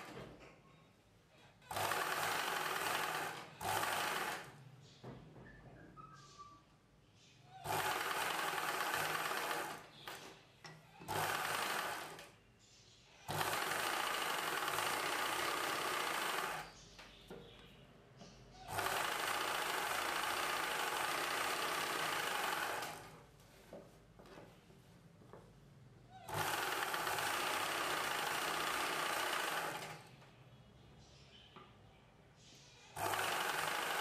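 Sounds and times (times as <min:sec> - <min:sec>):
sewing machine stitching: 0:01.6 - 0:04.6, 0:07.6 - 0:10.3, 0:11.0 - 0:12.3, 0:13.3 - 0:16.8, 0:18.7 - 0:23.2, 0:26.3 - 0:30.1, 0:32.9 - 0:34.0.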